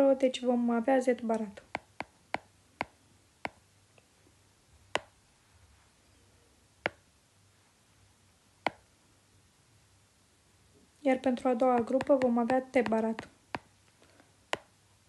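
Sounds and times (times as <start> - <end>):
stylus tapping on glass screen: 1.6 - 3.6, 4.9 - 5.2, 11.6 - 13.7.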